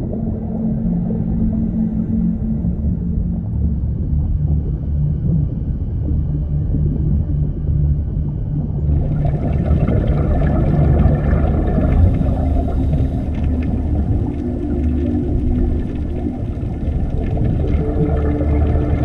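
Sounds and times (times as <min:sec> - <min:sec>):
deep underwater rumble: 0:00.0 - 0:19.0
sustained low tones: 0:00.0 - 0:19.0.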